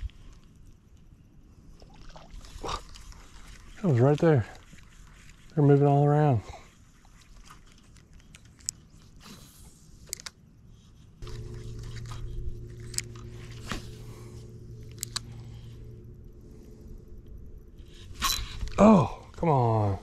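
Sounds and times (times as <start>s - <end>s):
rod and reel handling clicks: 7.6s - 9.2s, 10.0s - 10.4s, 11.3s - 13.7s, 14.8s - 15.3s
fishing reel whirring: 11.2s - 17.0s.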